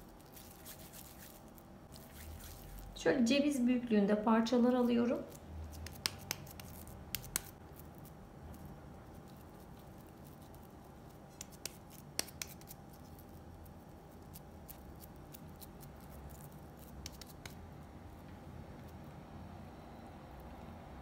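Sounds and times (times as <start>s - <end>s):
low room hum: 0.0s - 21.0s
wet hands pressing meat: 5.7s - 7.6s.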